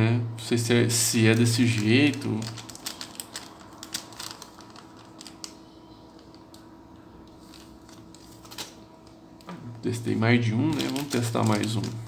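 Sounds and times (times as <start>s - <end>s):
low steady hum: 0.0s - 12.0s
plastic zip bag crinkling: 1.1s - 6.7s, 7.3s - 9.2s, 10.5s - 12.0s.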